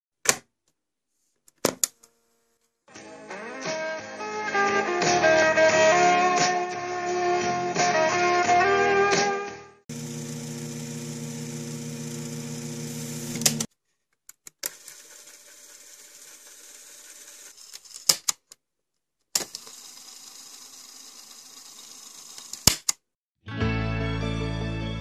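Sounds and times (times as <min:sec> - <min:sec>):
small motor whirring: 0:09.9 - 0:13.7, 0:14.6 - 0:18.1, 0:19.4 - 0:22.7.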